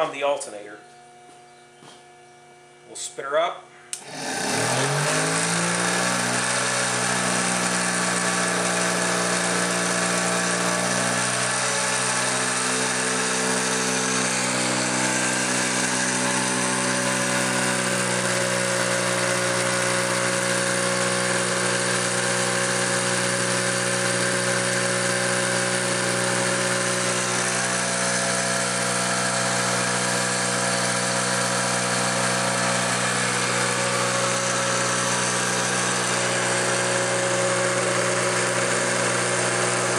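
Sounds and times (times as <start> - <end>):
electric motor humming and whining: 3.9 - 39.9.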